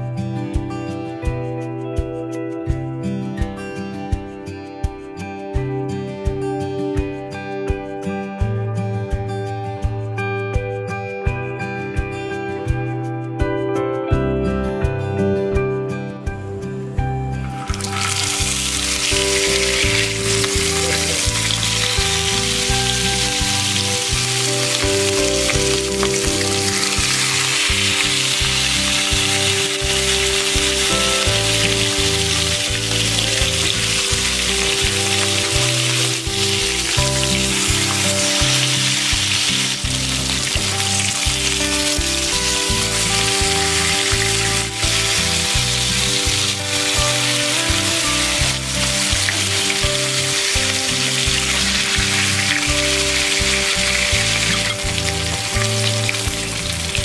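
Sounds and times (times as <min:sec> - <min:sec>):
background music: 0:00.0 - 0:57.0
fish sizzling in hot oil: 0:17.5 - 0:57.0.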